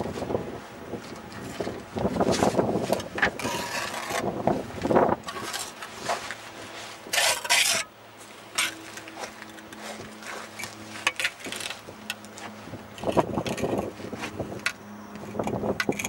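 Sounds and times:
faint steady hum: 0.0 - 16.0
rushing scrape: 2.2 - 4.3, 5.2 - 7.9, 8.5 - 14.4
bricks clinking and scraping: 2.4 - 4.3, 7.1 - 7.9, 8.5 - 12.2, 13.0 - 13.9, 14.6 - 16.0.

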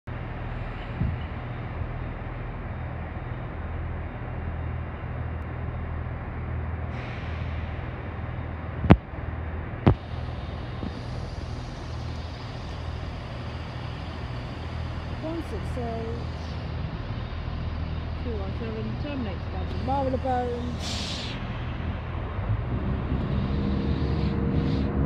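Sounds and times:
train diesel engines rumbling: 0.0 - 25.0
air hiss: 10.0 - 16.6, 19.8 - 21.6
higher hiss: 19.7 - 21.5.

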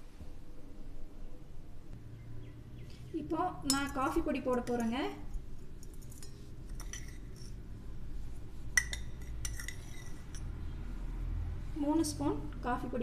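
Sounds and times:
spoon clinking on steel vessels: 3.6 - 7.7, 8.7 - 10.6.

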